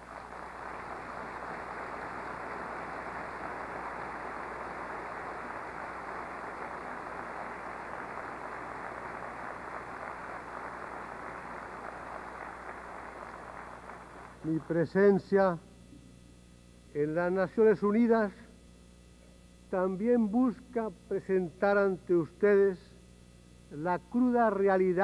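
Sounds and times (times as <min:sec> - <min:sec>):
crowd applauding: 0:00.0 - 0:15.0.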